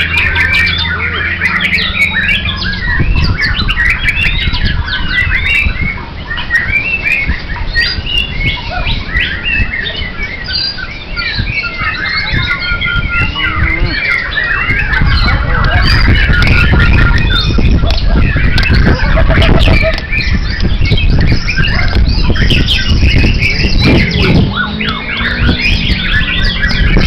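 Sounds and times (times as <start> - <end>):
low rumble: 0.0 - 6.0, 12.2 - 27.0
songbirds chorus: 0.0 - 27.0.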